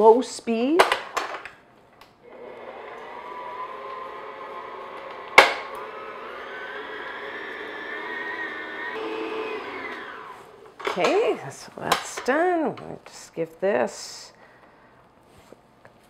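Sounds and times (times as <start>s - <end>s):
stand mixer motor whining: 2.3s - 10.7s.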